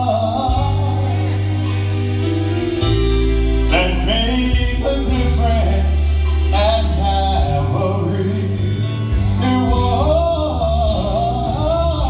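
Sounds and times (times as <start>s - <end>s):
bass line: 0.0s - 12.0s
choir singing gospel music: 0.0s - 12.0s.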